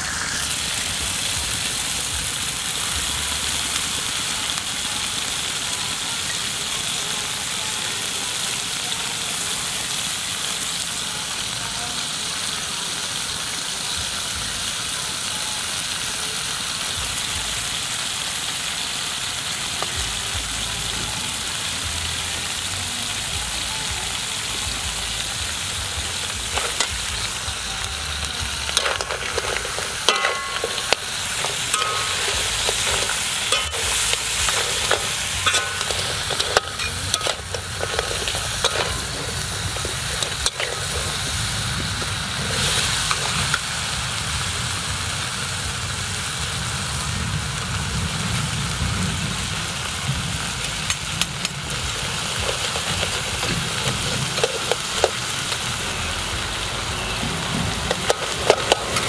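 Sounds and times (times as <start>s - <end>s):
crabs sizzling in a wok: 0.0s - 59.0s
metal ladle scraping a wok: 26.4s - 27.4s, 28.6s - 43.7s, 51.8s - 55.7s, 57.7s - 59.0s.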